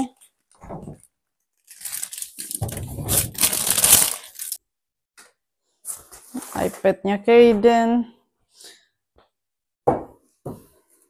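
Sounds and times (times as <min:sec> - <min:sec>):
plastic bag crinkling: 0:01.5 - 0:04.6.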